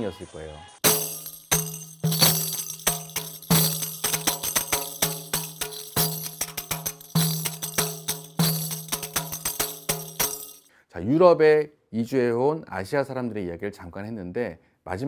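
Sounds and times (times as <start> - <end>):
frame drum with jingles: 0.8 - 10.7.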